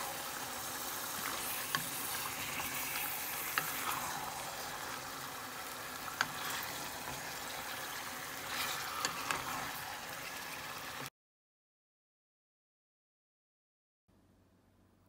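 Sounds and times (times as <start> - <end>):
meat sizzling in a hot pan: 0.0 - 11.1.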